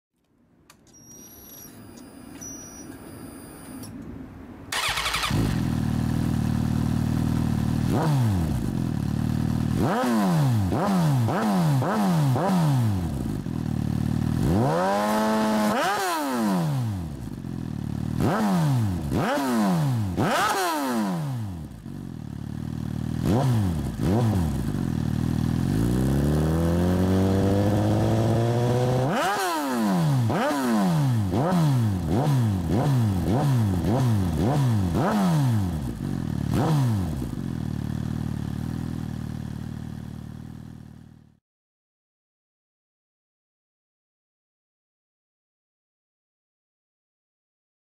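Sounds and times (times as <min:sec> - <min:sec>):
motorcycle engine revving: 0:04.7 - 0:41.4.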